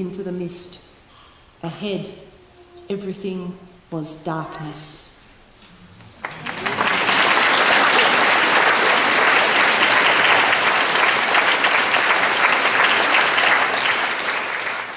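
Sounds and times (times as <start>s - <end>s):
audience applauding: 6.2s - 14.9s.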